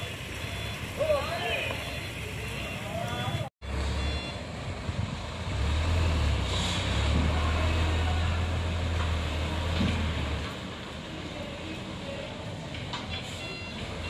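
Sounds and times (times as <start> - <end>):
truck diesel engine reversing: 3.6 - 10.4.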